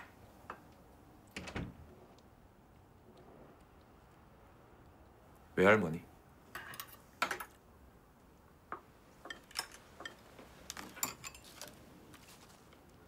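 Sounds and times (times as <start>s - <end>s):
cutlery clinking on plates: 9.2s - 11.8s.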